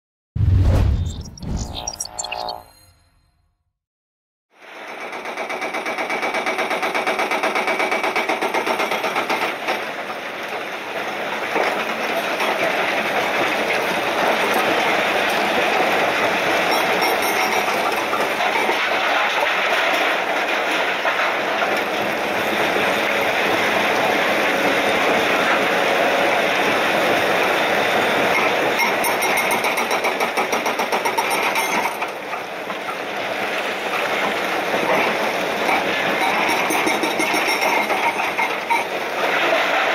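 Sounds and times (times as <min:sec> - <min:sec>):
excavator engine and hydraulics: 0:00.4 - 0:03.3.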